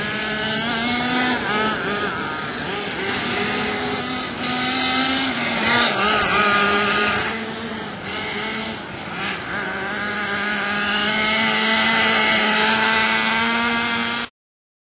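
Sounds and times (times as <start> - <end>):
rc car engine buzzing: 0.0 - 14.3.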